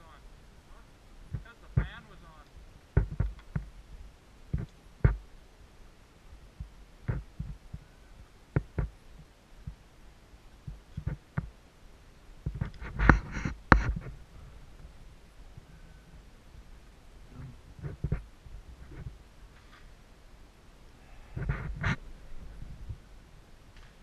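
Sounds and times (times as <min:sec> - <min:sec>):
thumps and knocks: 0:03.0 - 0:03.7.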